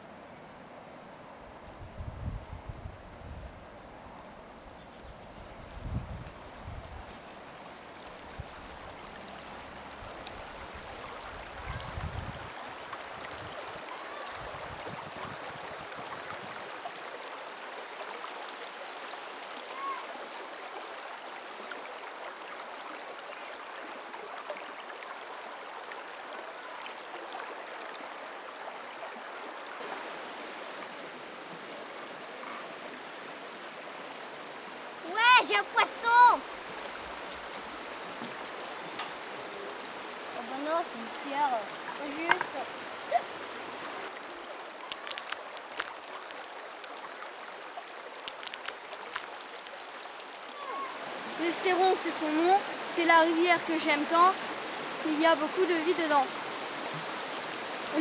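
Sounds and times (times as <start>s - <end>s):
river running over stones: 0.0s - 58.0s
small clicks: 44.9s - 45.9s.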